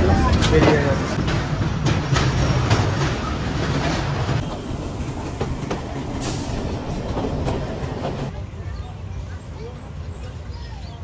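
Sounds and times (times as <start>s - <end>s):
wheel clacks over rail joints: 0.0s - 8.3s
train rumbling on track: 0.0s - 10.5s.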